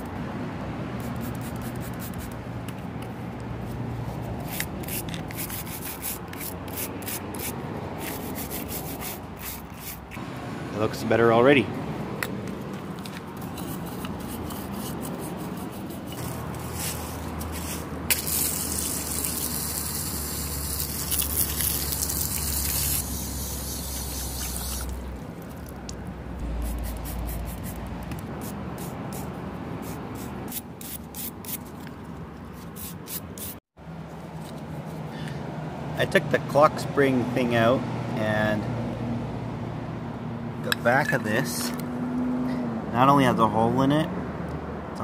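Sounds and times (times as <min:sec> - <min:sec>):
bristle brush scrubbing: 0:04.2 - 0:10.2, 0:13.4 - 0:25.1, 0:26.4 - 0:31.6
water spraying and splashing: 0:18.1 - 0:27.6.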